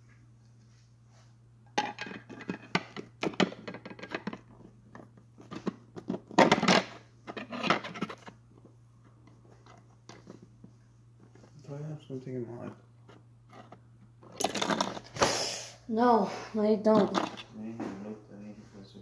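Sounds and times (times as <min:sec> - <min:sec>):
faint steady hum: 0:00.0 - 0:19.0
plastic figures clicking and scraping: 0:01.8 - 0:08.4, 0:13.1 - 0:15.1, 0:16.9 - 0:17.5.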